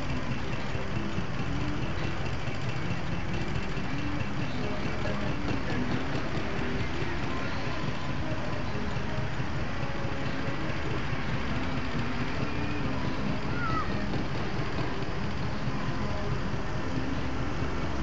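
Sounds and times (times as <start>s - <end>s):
faint murmur of voices: 0.0s - 18.0s
road traffic: 0.0s - 18.0s.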